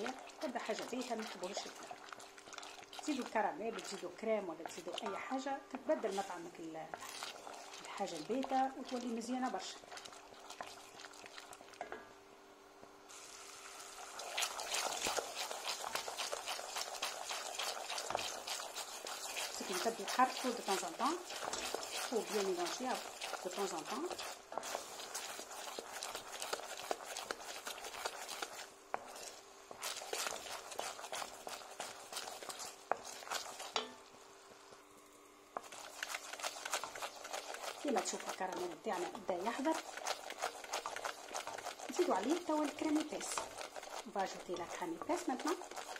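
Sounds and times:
wooden spoon stirring pot: 0.0 - 12.1, 14.0 - 34.7, 35.5 - 45.9
syrup boiling with bursting bubbles: 0.0 - 12.2, 12.8 - 45.9.

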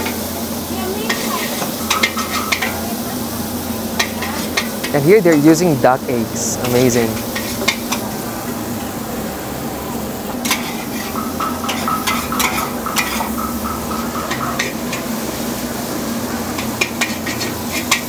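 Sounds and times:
noodles sizzling in a wok: 0.0 - 18.0
metal spatula scraping wok: 1.0 - 2.8, 6.4 - 8.0, 10.4 - 15.1, 16.5 - 18.0.

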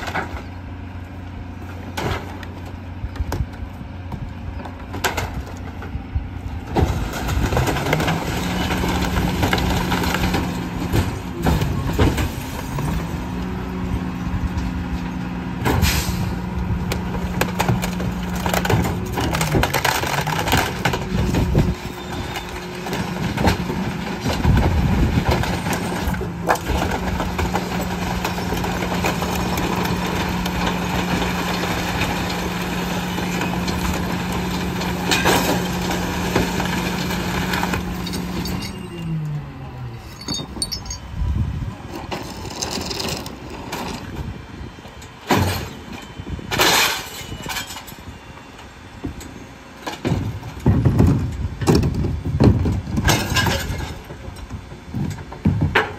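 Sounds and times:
garbage truck engine under load: 0.0 - 55.9
junk crunching and breaking: 1.7 - 13.5, 16.6 - 38.8, 49.9 - 55.9.

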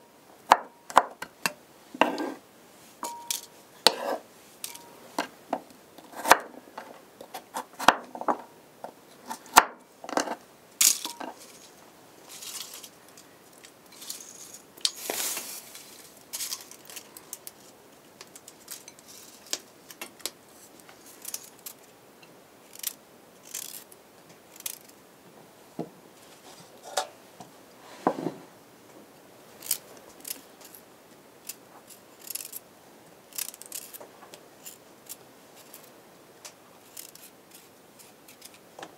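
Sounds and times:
scrape: 2.0 - 2.4, 3.8 - 4.2, 13.9 - 17.0, 26.2 - 27.2, 27.8 - 28.5
knife shaving beet skin: 6.1 - 6.4, 31.4 - 32.6, 33.3 - 34.0, 36.8 - 38.6.

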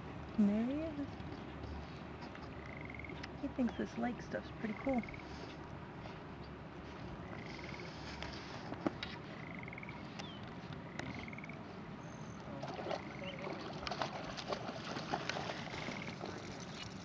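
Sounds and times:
frog trilling: 2.6 - 3.2, 9.4 - 10.0, 10.9 - 11.6
dog splashing through water: 12.5 - 17.0.

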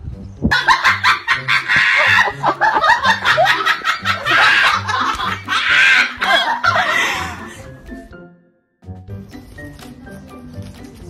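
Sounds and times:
laughter: 0.5 - 7.7.

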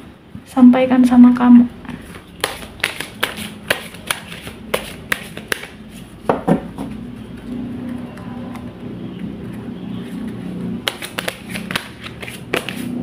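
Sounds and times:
rustle of cards: 1.9 - 6.1, 9.5 - 13.0
cards being shuffled: 1.9 - 8.8, 9.4 - 13.0
sharp card slaps: 2.4 - 5.8, 10.8 - 12.9.

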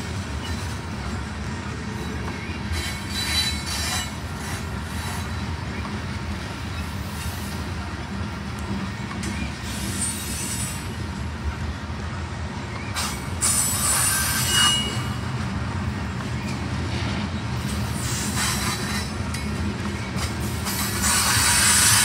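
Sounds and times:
train wheels rumbling on rail: 0.0 - 22.0
high-pitched wheel squeals: 2.7 - 4.2, 12.9 - 15.3.

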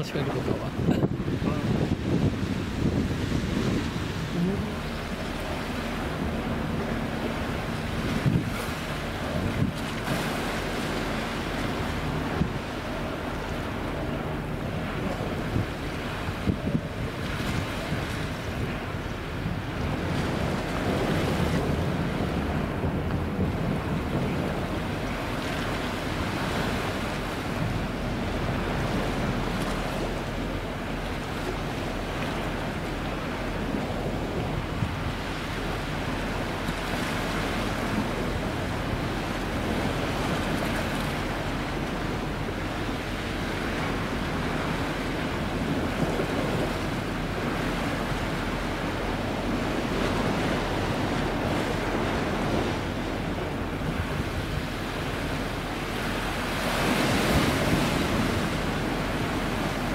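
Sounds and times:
sea: 0.0 - 59.9
wind buffeting microphone: 0.0 - 59.9
wind rushing: 0.6 - 5.1.

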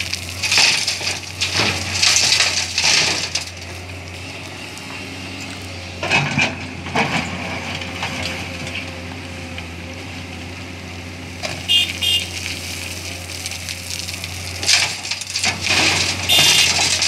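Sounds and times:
gravel rattling into truck bed: 0.0 - 4.5, 5.4 - 8.8, 11.4 - 17.0
diesel engine running: 0.0 - 17.0.

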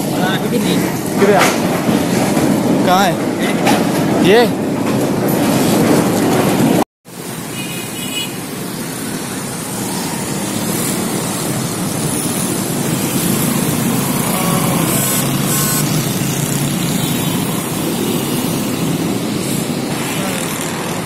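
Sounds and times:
road traffic passing: 0.0 - 21.0.

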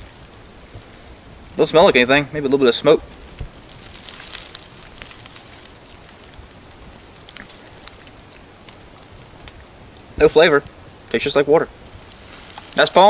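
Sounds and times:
plastic bottle crackling: 3.0 - 9.6, 11.8 - 13.0.

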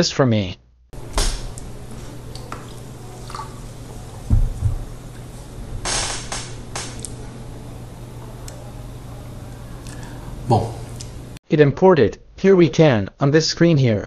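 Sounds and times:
steady low hum: 1.0 - 11.4
low thump: 4.3 - 4.9
short hissing bursts: 5.8 - 7.0.

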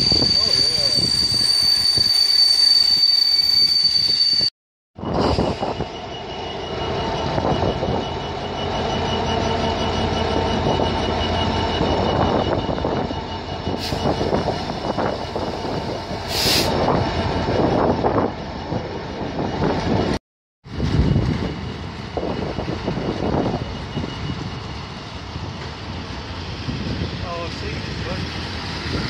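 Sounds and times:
diesel locomotive engine throbbing: 0.0 - 2.9, 5.0 - 29.0
short hisses: 16.3 - 16.8.

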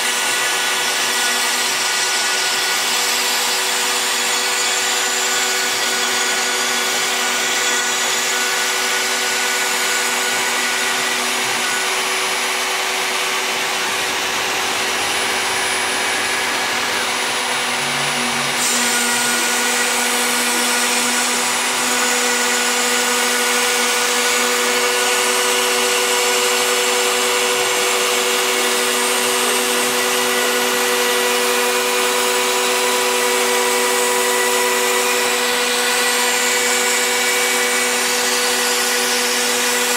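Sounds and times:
router spindle whine: 0.0 - 39.9
hiss of wood being cut: 17.0 - 39.9.

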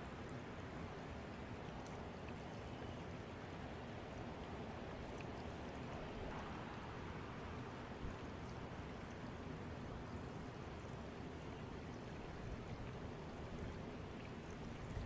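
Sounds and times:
rushing water: 0.0 - 15.0
small ticks: 1.7 - 3.1.

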